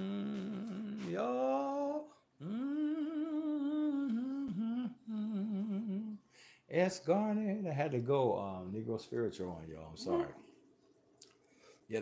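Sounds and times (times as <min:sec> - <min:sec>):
person humming a slow melody: 0:00.0 - 0:06.3.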